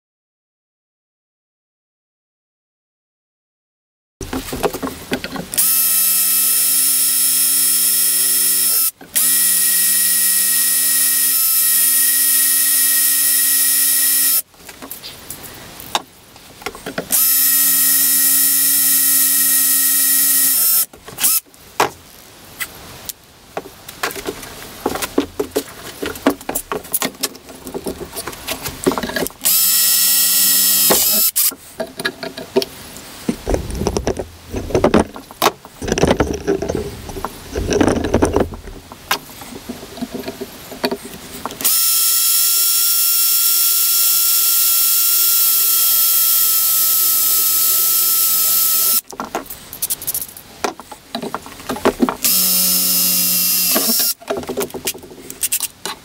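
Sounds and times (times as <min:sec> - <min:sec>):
drill whining through steel: 0:05.6 - 0:14.5, 0:17.1 - 0:21.4, 0:29.4 - 0:31.5, 0:41.6 - 0:49.0, 0:52.2 - 0:54.2
metal clattering and knocking: 0:33.3 - 0:41.0.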